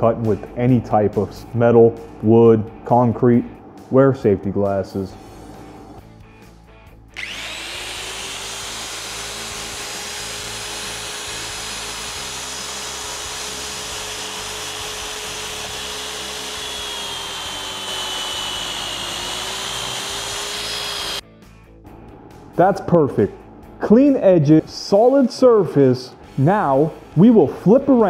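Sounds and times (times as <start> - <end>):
magnetic drill boring steel: 7.2 - 21.2.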